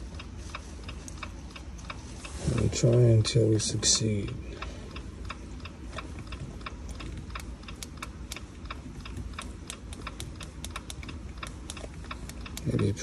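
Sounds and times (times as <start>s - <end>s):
low steady hum: 0.0s - 13.0s
hazard flasher ticking: 5.0s - 13.0s.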